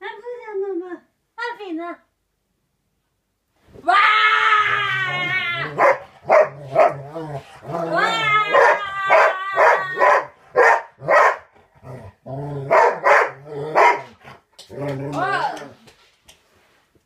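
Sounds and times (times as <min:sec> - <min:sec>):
dog howling: 0:04.1 - 0:10.3
dog barking: 0:05.7 - 0:07.0, 0:08.5 - 0:11.5, 0:12.7 - 0:14.2.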